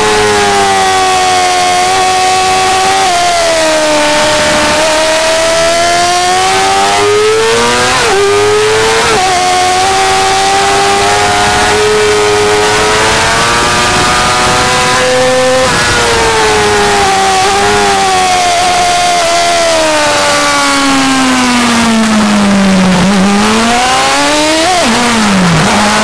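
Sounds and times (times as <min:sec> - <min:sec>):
motorcycle engine accelerating: 0:00.0 - 0:26.0
wind rush: 0:12.7 - 0:18.1.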